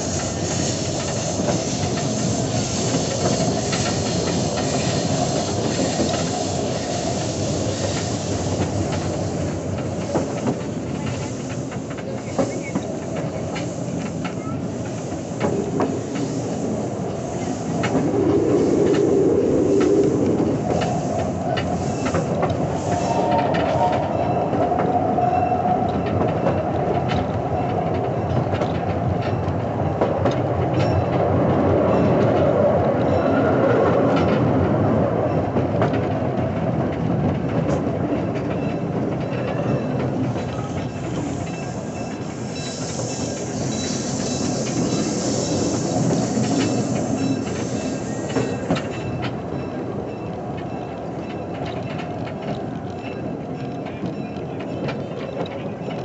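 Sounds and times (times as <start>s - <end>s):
small train rumbling on track: 0.0s - 56.0s
wheels clicking over rail joints: 0.0s - 56.0s
high hiss: 40.8s - 49.0s.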